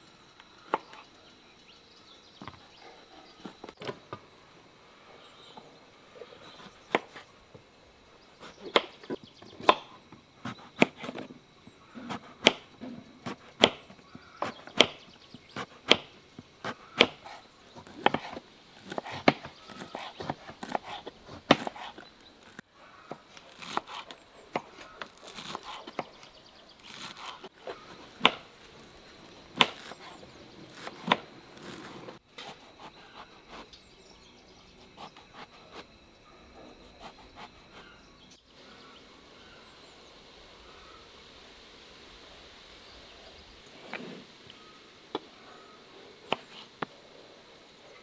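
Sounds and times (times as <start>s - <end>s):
faint outdoor background: 0.0s - 48.0s
knife chopping on wooden board: 15.6s - 22.0s.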